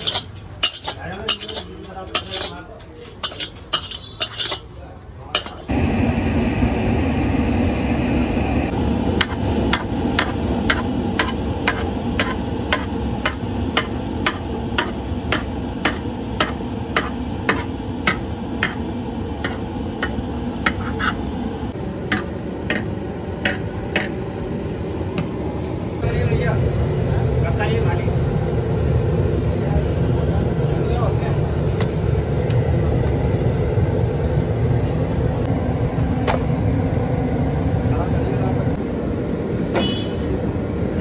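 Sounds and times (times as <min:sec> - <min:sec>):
candy beaten against iron pan: 0:00.0 - 0:04.6
metal spatula scraping wok: 0:00.0 - 0:04.8, 0:05.4 - 0:05.7, 0:20.7 - 0:21.3
steady low rumble: 0:05.7 - 0:15.4.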